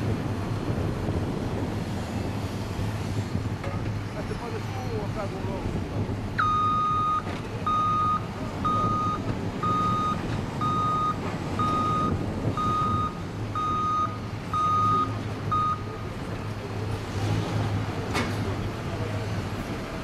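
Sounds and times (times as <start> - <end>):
diesel engine humming: 0.0 - 20.0
machinery warning beeper: 6.4 - 16.1.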